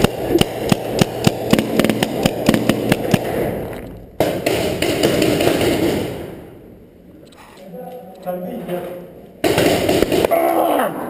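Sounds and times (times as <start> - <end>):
paintball marker firing: 0.0 - 3.5, 4.2 - 6.4, 9.4 - 10.4
steady rushing noise: 0.0 - 6.7.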